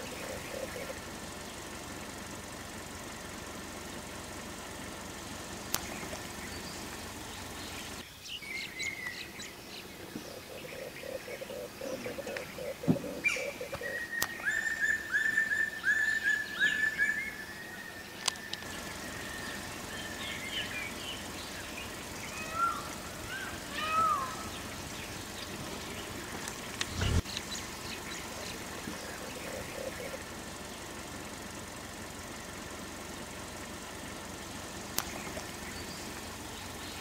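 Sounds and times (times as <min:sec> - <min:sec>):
birds calling down-curving notes: 0:00.0 - 0:37.0
bird chirps and whistles: 0:13.8 - 0:20.6.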